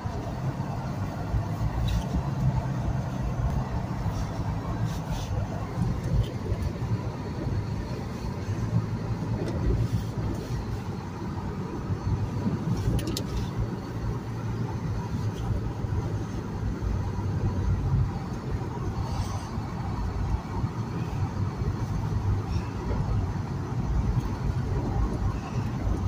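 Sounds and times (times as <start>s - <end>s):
car engine and tyres in snow: 0.0s - 26.0s.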